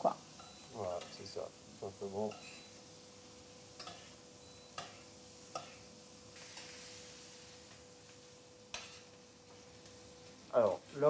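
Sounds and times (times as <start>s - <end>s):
meat sizzling in butter: 0.0s - 11.0s
spoon clicking against pan: 3.8s - 4.1s, 4.7s - 5.8s.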